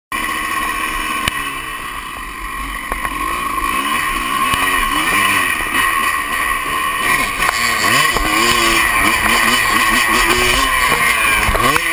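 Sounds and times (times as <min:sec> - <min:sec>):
dirt bike engine revving: 0:00.1 - 0:11.9.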